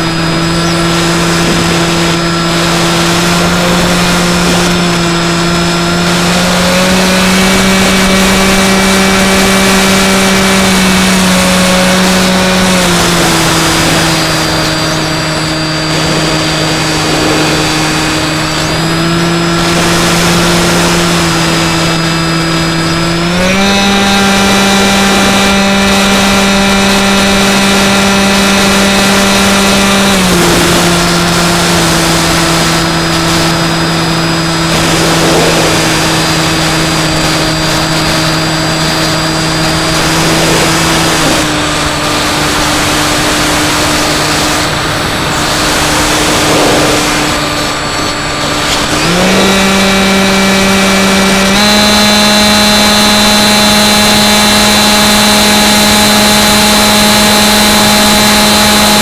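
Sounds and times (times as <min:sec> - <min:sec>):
electric motor whine: 0:00.0 - 0:59.0
rush of air: 0:13.2 - 0:22.0, 0:30.2 - 0:49.9.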